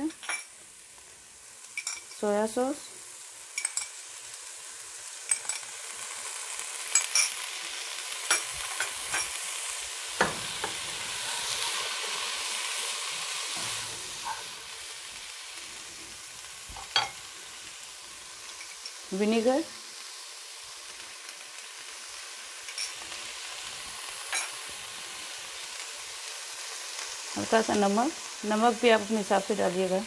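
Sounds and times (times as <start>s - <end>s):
food sizzling in a pot: 0.0s - 30.0s
utensils clicking on pot: 1.8s - 2.3s, 3.6s - 4.0s, 5.2s - 5.8s, 6.9s - 7.4s, 8.2s - 9.4s, 22.6s - 23.0s.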